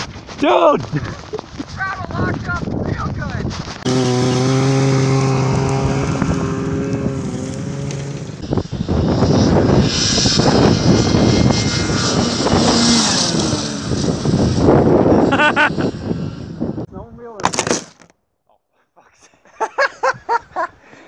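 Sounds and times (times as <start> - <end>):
snowmobile engine running: 3.1 - 16.2
snowmobile passing close: 3.7 - 16.8.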